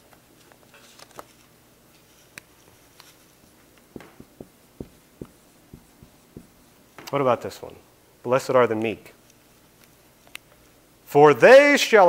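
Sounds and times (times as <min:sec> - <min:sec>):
marker writing on whiteboard: 0:04.0 - 0:06.6.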